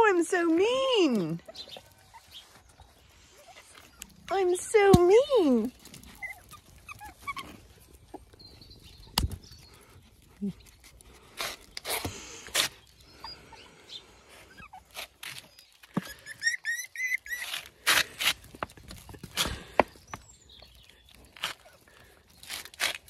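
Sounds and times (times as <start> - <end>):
puppies scuffling on concrete: 0.0 - 13.0, 14.4 - 22.5
puppy high chirps: 6.1 - 8.4, 14.5 - 17.7.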